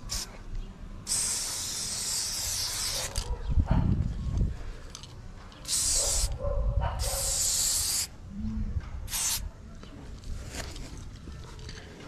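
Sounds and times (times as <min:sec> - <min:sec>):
spray bottle hissing: 0:00.1 - 0:00.3, 0:01.1 - 0:03.3, 0:05.6 - 0:06.4, 0:07.0 - 0:08.2, 0:09.1 - 0:09.4.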